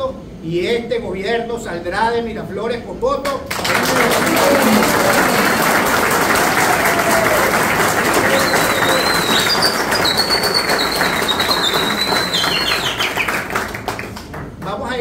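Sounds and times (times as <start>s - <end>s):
group applauding: 3.5s - 15.0s
high wavering whistling tone: 8.3s - 13.5s.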